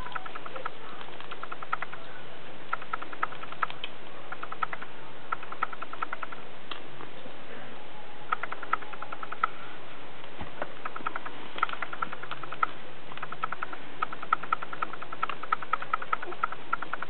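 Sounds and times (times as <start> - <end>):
puppies squeaking: 0.0 - 2.0.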